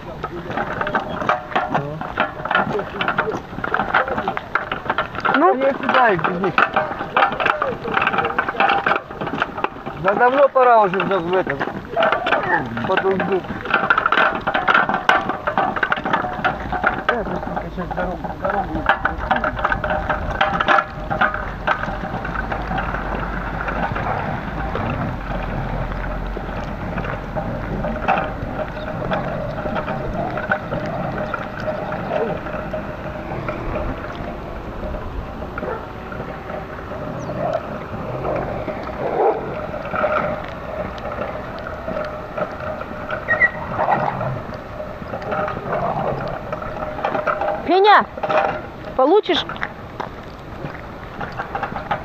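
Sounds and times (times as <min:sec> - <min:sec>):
cart creaking: 0:00.0 - 0:52.0
clicks and knocks: 0:00.0 - 0:52.0
handcart rolling over wet asphalt: 0:00.0 - 0:52.0
wind rumble on microphone: 0:11.3 - 0:52.0.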